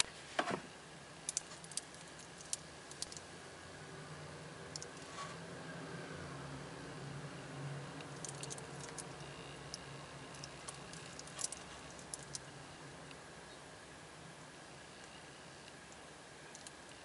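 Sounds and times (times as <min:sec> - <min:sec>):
steady low hum: 0:00.0 - 0:17.0
metal watch bracelet clinking: 0:08.1 - 0:09.3, 0:10.3 - 0:12.4.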